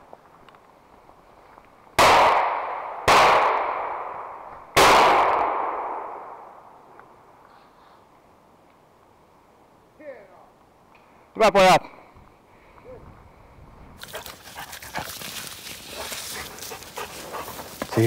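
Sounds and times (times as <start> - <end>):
shotgun shots: 2.0 - 6.5
long echo: 2.2 - 6.9.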